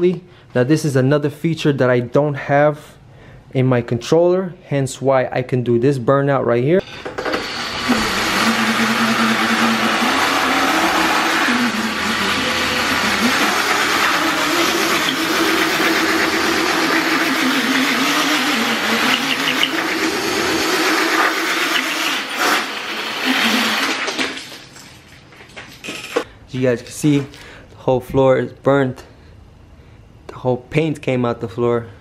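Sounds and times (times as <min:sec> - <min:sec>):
electric motor whine: 0:07.1 - 0:23.9.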